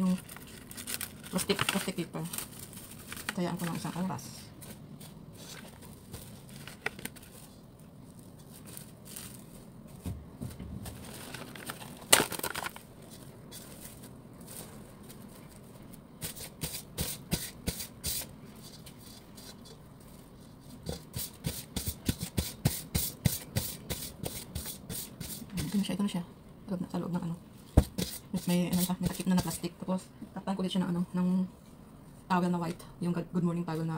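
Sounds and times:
cling wrap tearing: 0:00.0 - 0:04.0
cling wrap crinkling: 0:00.0 - 0:16.0.

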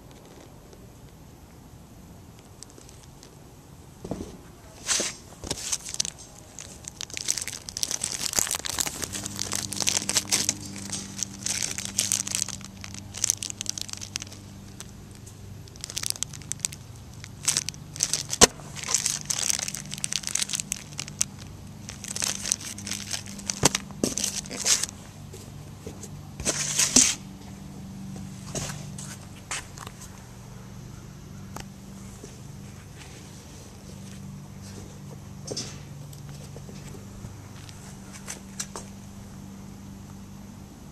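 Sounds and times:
plastic bags crinkling: 0:04.8 - 0:25.0.

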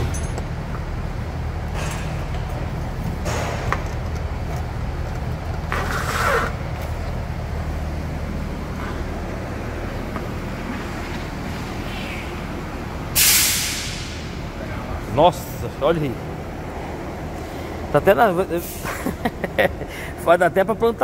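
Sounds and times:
low background hum: 0:00.0 - 0:21.0
gloved hand scraping and rustling: 0:05.6 - 0:06.6.

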